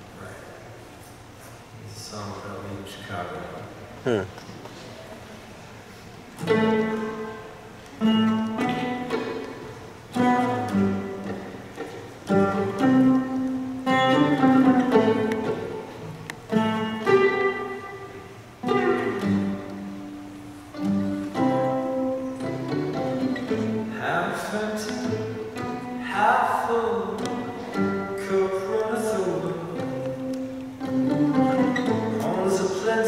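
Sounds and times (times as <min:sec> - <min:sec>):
acoustic guitars playing: 0:05.8 - 0:33.0
violin: 0:06.4 - 0:28.5.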